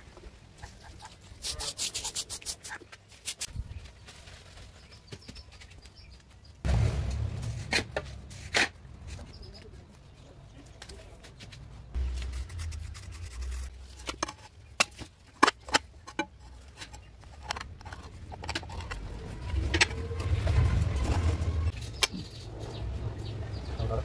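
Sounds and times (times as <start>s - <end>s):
low rumble: 6.6s - 9.4s, 11.8s - 14.7s, 17.5s - 21.8s.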